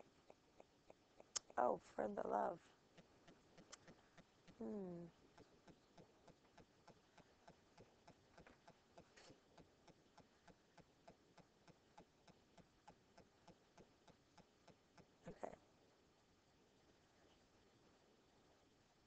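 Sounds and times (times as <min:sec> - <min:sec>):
faint repeated ticking: 0:00.0 - 0:19.0.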